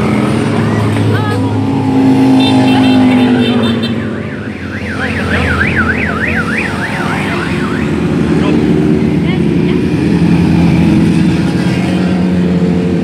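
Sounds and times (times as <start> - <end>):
motorcycle engines rumbling: 0.0 - 13.0
siren-like warble: 3.1 - 8.1.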